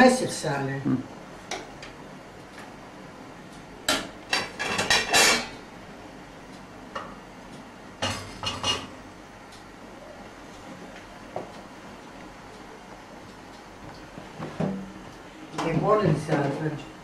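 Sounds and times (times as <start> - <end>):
metal utensils clanking on pots: 3.9 - 5.6, 8.0 - 8.9.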